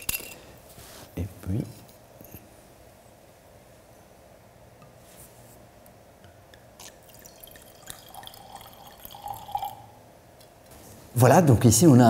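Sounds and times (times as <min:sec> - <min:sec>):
wine pouring into glass: 0:06.8 - 0:10.0.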